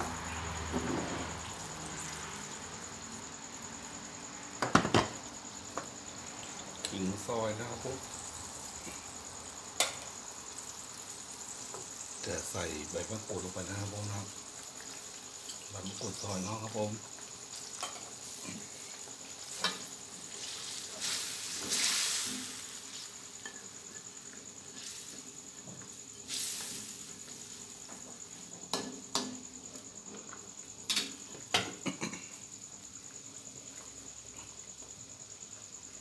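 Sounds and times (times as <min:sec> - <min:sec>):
curry sizzling: 0:00.0 - 0:36.0
spatula scraping a wok: 0:17.5 - 0:25.3.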